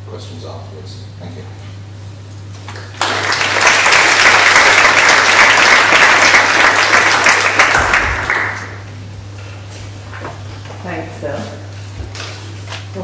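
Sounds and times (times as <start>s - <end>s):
audience applauding: 2.7s - 8.8s.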